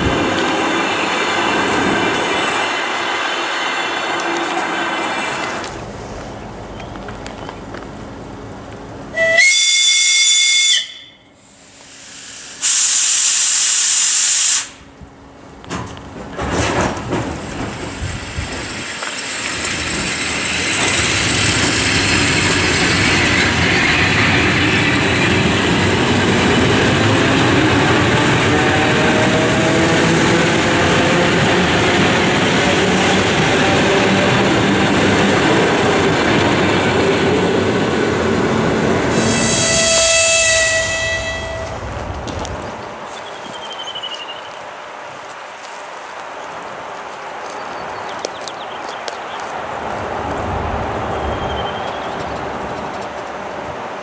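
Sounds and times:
train wheels on rails: 0:00.0 - 0:54.0
train horn blast: 0:09.1 - 0:11.3, 0:39.1 - 0:41.9
loud air hiss: 0:11.3 - 0:14.9, 0:39.1 - 0:41.7.

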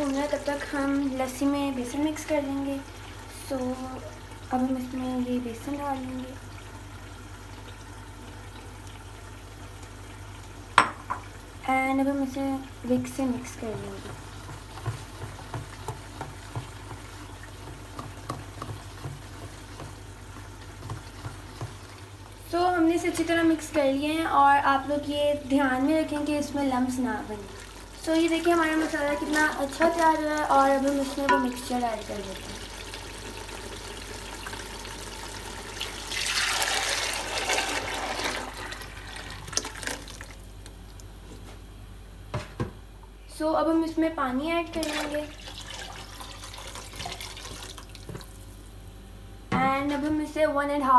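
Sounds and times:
whisk tapping in a bowl: 0:13.7 - 0:21.8, 0:31.2 - 0:31.7
liquid pouring into a pot: 0:27.5 - 0:41.0, 0:44.8 - 0:48.6.

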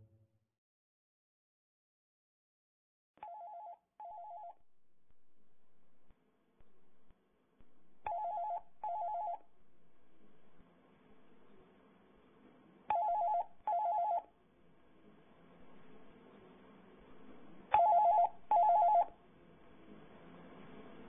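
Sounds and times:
telephone ringing: 0:03.2 - 0:04.6, 0:08.1 - 0:09.5, 0:12.9 - 0:14.3, 0:17.7 - 0:19.2.

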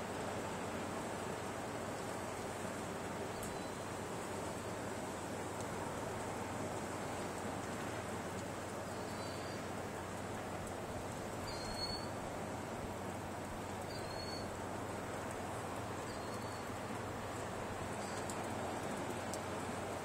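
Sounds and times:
surf along the shore: 0:00.0 - 0:20.0
wind: 0:00.0 - 0:20.0
faint high chirp: 0:03.3 - 0:03.9, 0:08.9 - 0:09.6, 0:11.4 - 0:12.1, 0:13.9 - 0:14.5, 0:16.1 - 0:16.7, 0:18.0 - 0:18.4.

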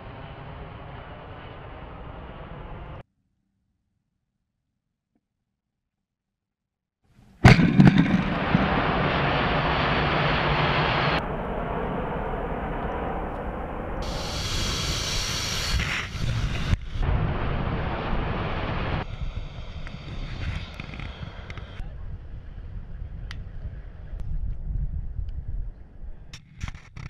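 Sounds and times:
jet engines roaring: 0:00.0 - 0:03.0, 0:07.4 - 0:22.5
rushing wind: 0:00.0 - 0:03.0, 0:07.4 - 0:27.0.

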